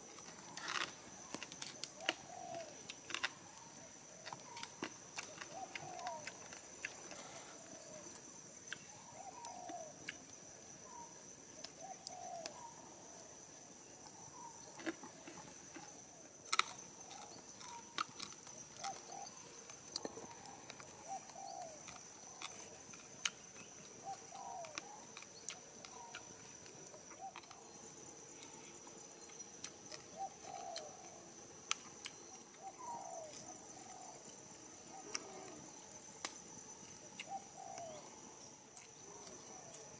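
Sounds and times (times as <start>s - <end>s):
forest birds calling: 0.0s - 13.3s, 13.9s - 39.9s
campfire crackling: 35.0s - 37.2s.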